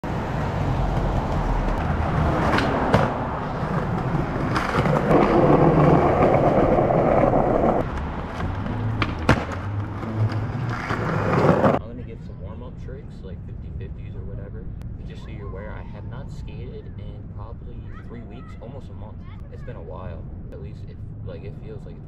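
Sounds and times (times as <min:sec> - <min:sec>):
skateboard wheels rolling on concrete: 0:00.0 - 0:11.8
skateboard clacks: 0:00.9 - 0:11.8.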